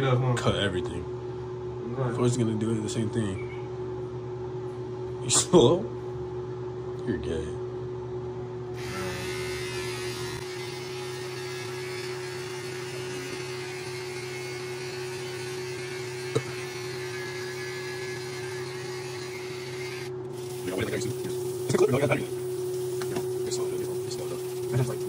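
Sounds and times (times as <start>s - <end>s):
electric hair trimmer buzzing: 8.7s - 25.0s.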